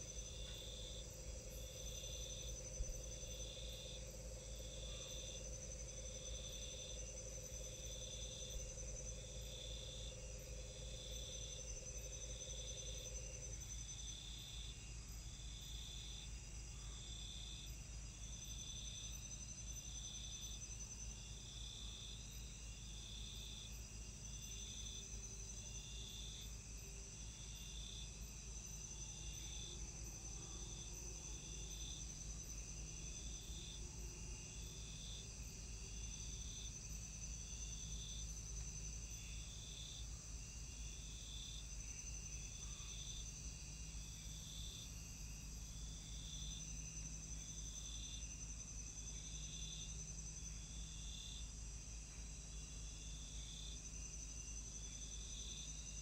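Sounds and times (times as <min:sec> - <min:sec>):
high-pitched insect drone: 0:00.0 - 0:14.8
insect chirping pulse: 0:00.0 - 0:56.0.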